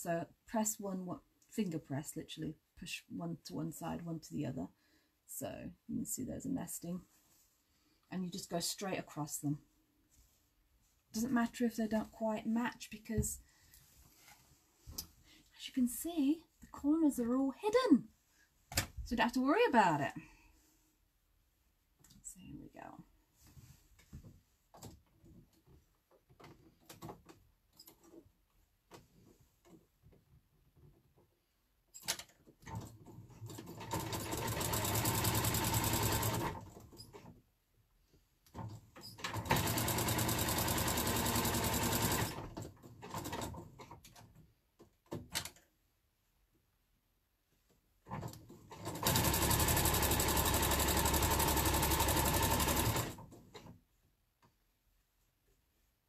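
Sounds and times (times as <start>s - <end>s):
sewing machine stitching: 32.0s - 37.3s, 38.6s - 44.0s, 48.1s - 53.8s.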